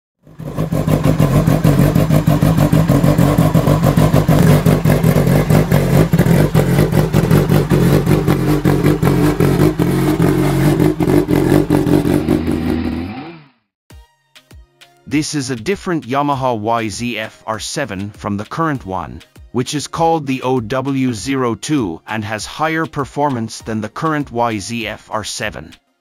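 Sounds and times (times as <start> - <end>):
motorcycle engine running: 0.2 - 13.4.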